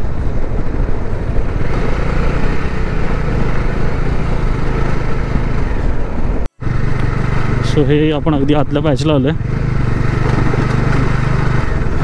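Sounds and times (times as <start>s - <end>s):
motorcycle engine running: 0.0s - 12.0s
wind and road noise: 0.0s - 12.0s.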